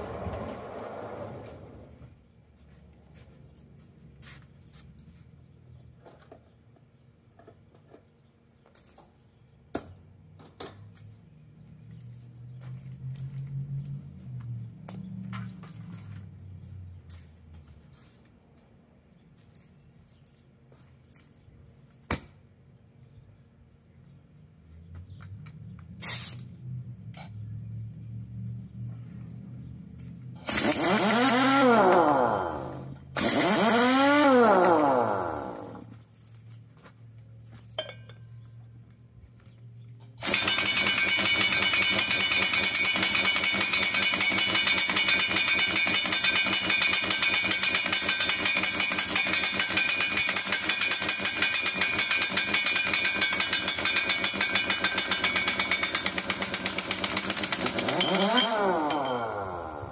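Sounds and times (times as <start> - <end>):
pneumatic impact wrench hammering: 30.4 - 35.9, 40.2 - 59.9.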